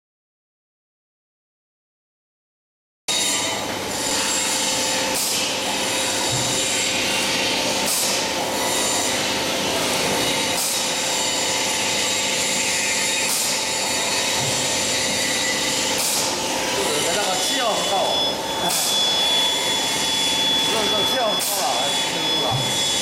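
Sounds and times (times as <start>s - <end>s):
machine whirring: 3.1s - 23.0s
machine swish: 5.2s - 5.5s, 7.8s - 8.2s, 10.5s - 10.9s, 13.2s - 13.6s, 16.0s - 16.4s.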